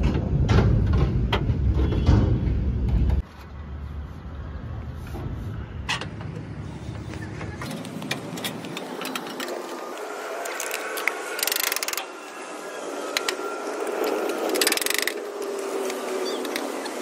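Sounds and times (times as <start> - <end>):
ratchet wrench clicking: 10.6 - 12.1, 14.5 - 15.2.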